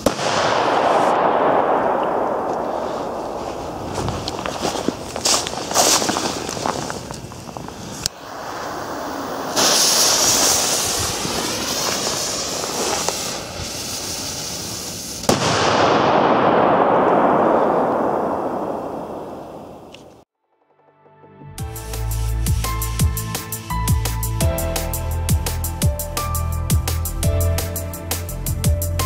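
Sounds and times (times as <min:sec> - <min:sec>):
firework hissing: 0:00.0 - 0:15.4
firework rushing hiss: 0:00.0 - 0:15.5
fireworks crackling fizz: 0:00.0 - 0:20.2.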